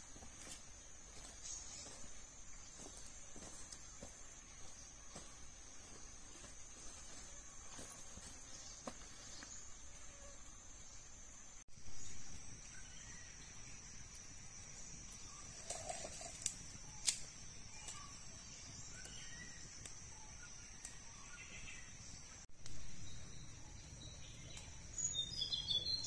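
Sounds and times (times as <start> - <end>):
insects trilling: 0.0 - 26.0
bird chirps: 16.8 - 26.0.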